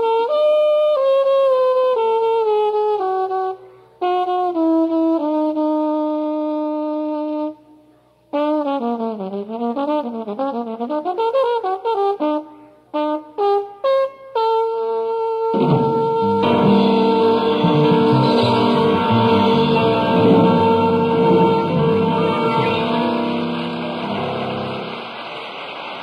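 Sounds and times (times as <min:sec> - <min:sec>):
jazz trombone playing: 0:00.0 - 0:07.6, 0:08.3 - 0:25.2.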